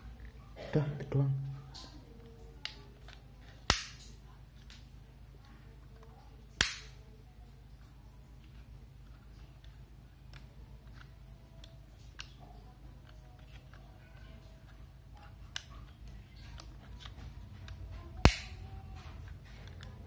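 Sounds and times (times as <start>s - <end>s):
loud plastic snap: 3.7s - 4.1s, 6.6s - 7.0s, 18.2s - 18.6s.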